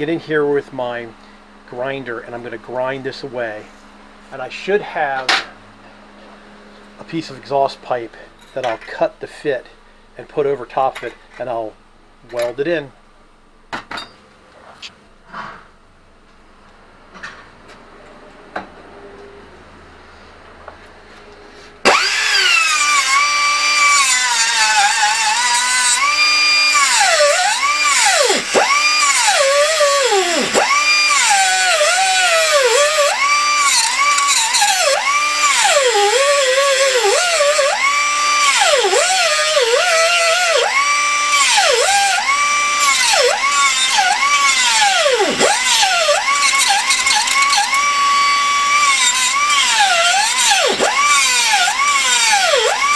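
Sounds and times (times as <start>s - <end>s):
angle grinder grinding steel: 21.8s - 52.9s.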